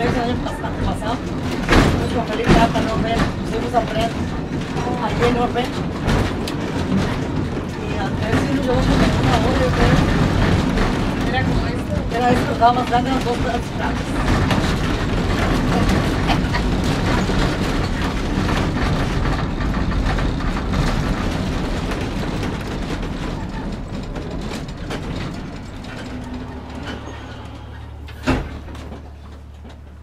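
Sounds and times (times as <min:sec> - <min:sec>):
streetcar rolling and rattling on rails: 0:00.0 - 0:30.0
low hum: 0:14.1 - 0:30.0.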